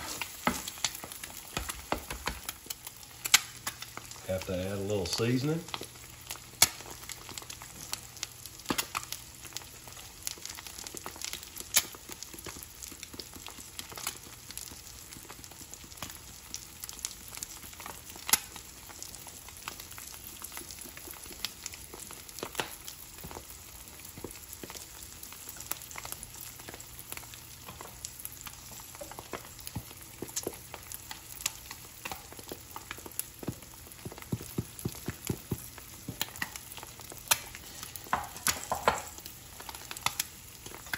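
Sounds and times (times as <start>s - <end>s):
sharp crackling pops: 0.0s - 4.2s, 5.2s - 9.2s, 10.3s - 13.5s, 18.0s - 20.1s, 24.0s - 40.9s
egg sizzling in a skillet: 0.0s - 40.9s.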